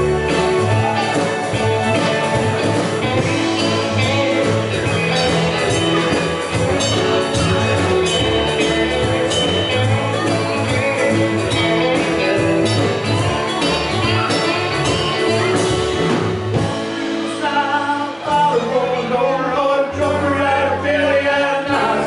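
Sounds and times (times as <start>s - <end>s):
drum kit: 0.0s - 20.3s
bass guitar: 0.0s - 22.0s
electric guitars: 0.0s - 22.0s
person singing: 16.8s - 22.0s.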